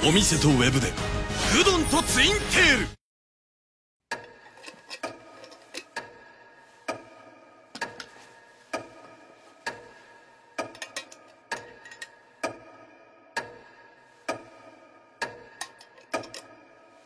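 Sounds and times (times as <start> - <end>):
clock ticking: 4.1 - 17.0.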